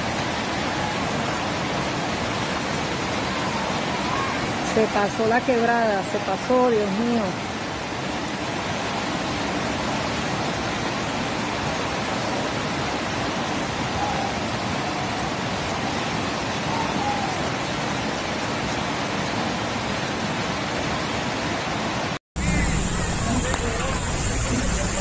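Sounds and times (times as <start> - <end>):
rushing flood water: 0.0 - 22.2.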